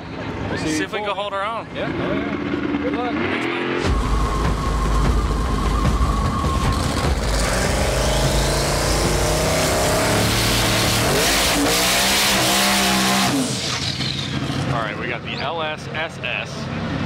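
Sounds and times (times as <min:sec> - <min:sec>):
truck engine revving: 0:01.8 - 0:14.9.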